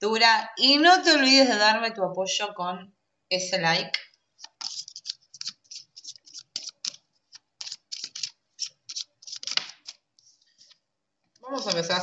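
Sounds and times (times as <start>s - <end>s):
cards being shuffled: 4.4s - 10.8s, 11.4s - 12.0s.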